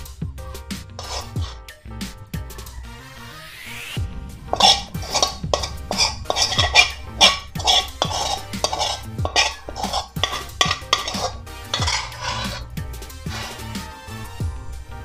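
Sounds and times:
spatula scraping metal pan: 1.0s - 1.6s, 4.4s - 14.2s.

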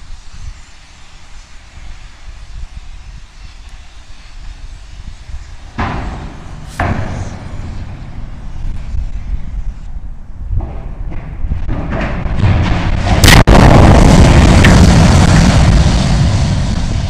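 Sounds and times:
wind rumble on microphone: 0.0s - 17.0s
sharp bangs: 5.8s - 9.0s, 10.5s - 17.0s.

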